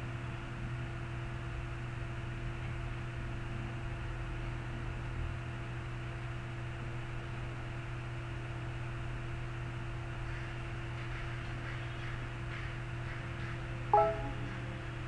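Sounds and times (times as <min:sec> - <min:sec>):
electrical hum: 0:13.7 - 0:15.0.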